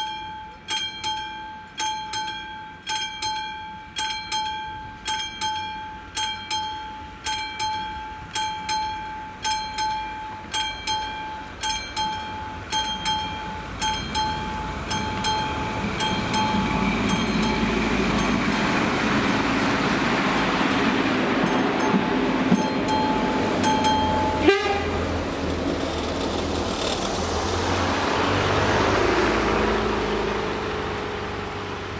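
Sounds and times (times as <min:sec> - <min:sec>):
level crossing warning bell: 0:00.0 - 0:25.4
railbus running over crossing: 0:00.0 - 0:31.9.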